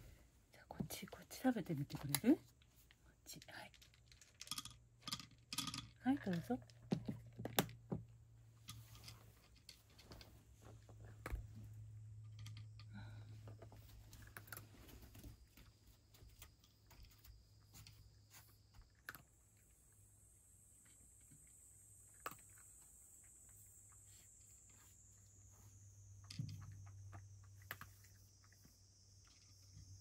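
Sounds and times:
cat crunching dry kibble: 14.1 - 14.8, 22.1 - 22.7.

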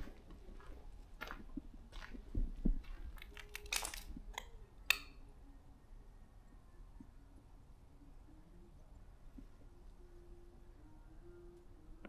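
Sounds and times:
footsteps crunching over debris: 0.0 - 4.2.

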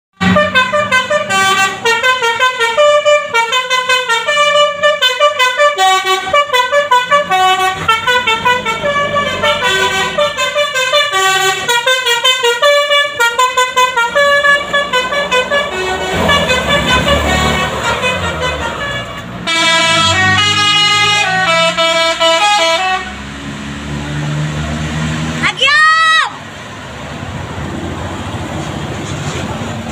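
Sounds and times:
held horn chords: 0.2 - 23.3
bus horns playing tunes: 0.2 - 23.6.

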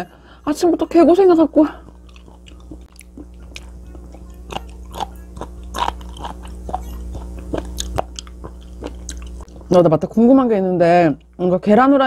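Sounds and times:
steady low hum: 0.0 - 12.0
crunchy chewing: 1.7 - 9.7.

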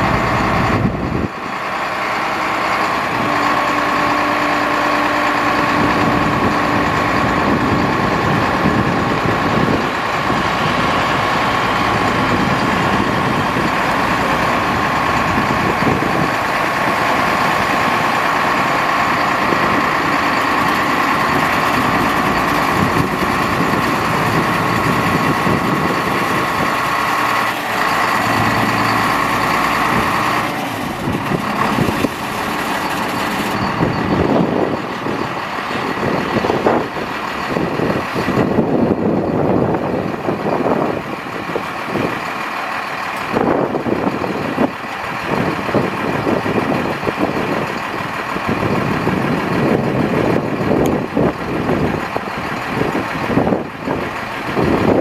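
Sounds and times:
steady high hydraulic whine: 0.0 - 44.0
diesel truck engine running: 0.0 - 55.0.

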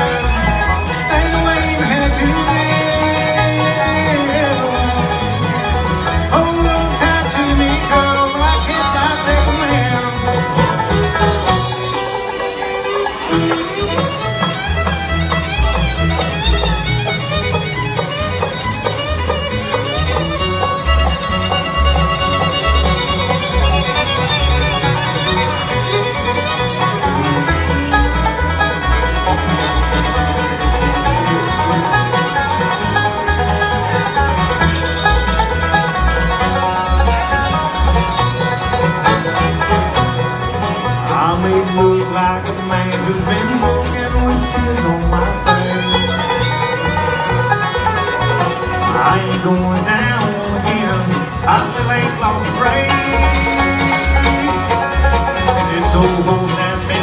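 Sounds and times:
bluegrass band playing: 0.0 - 57.0
fiddle: 0.0 - 57.0
plucked bass line: 0.0 - 57.0.

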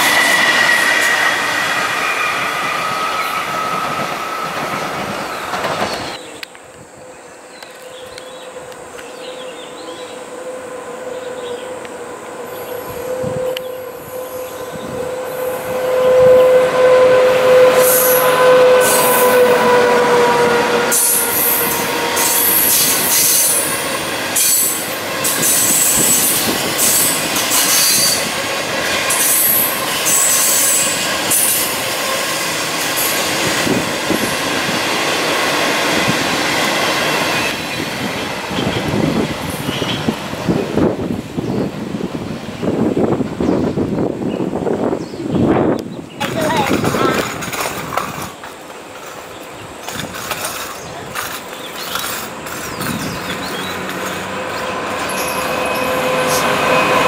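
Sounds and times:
wheels squealing on rails: 0.0 - 41.7, 46.2 - 57.0
electric locomotive tone: 0.0 - 45.0, 49.4 - 57.0
wheels clicking on rails: 46.2 - 57.0.

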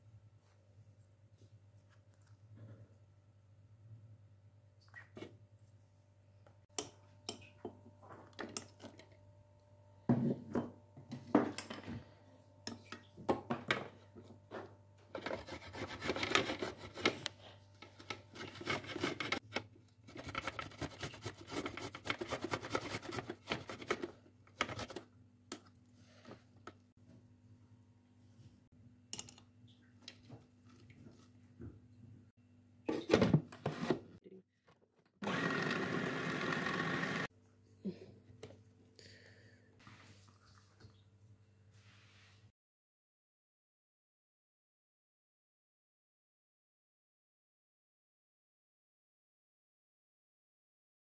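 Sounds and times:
grating on metal grater: 15.2 - 17.1, 20.1 - 23.9.

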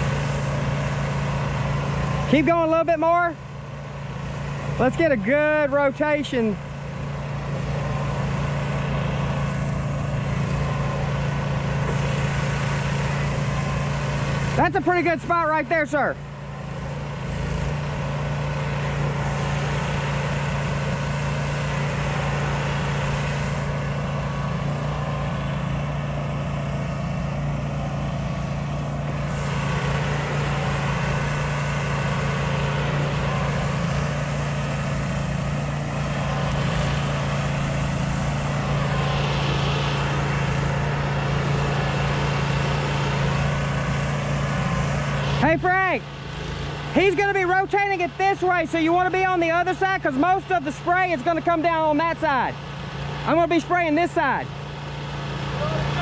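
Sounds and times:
pressure washer engine running: 0.0 - 56.0
water spraying hiss: 11.4 - 14.6, 28.5 - 45.3.

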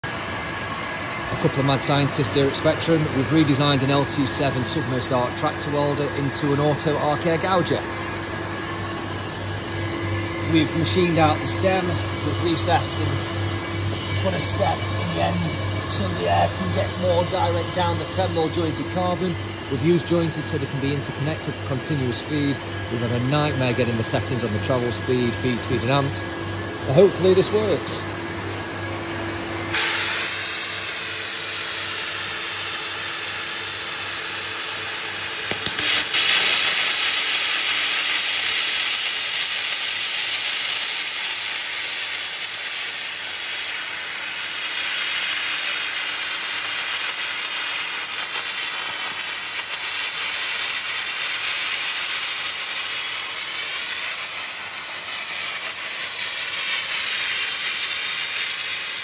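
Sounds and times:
machine hum: 0.0 - 59.0
arc gouging hiss: 29.7 - 32.6, 35.4 - 59.0.

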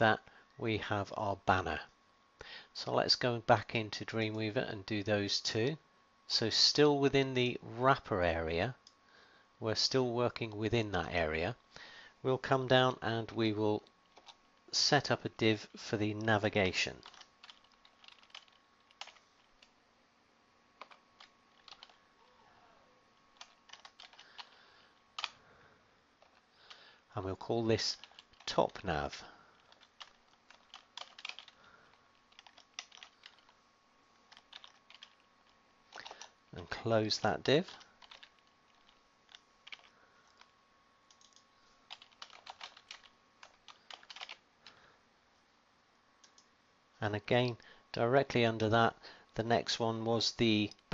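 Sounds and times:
computer keyboard typing: 14.1 - 14.4, 17.0 - 19.7, 20.8 - 22.0, 23.4 - 24.6, 27.9 - 28.8, 29.5 - 33.5, 34.3 - 35.3, 35.9 - 36.4, 37.6 - 40.5, 41.1 - 44.4.

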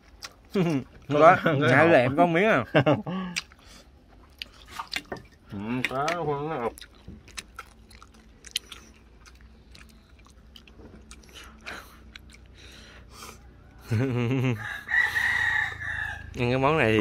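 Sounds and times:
chewing crispy food: 0.0 - 2.1, 3.0 - 13.9.

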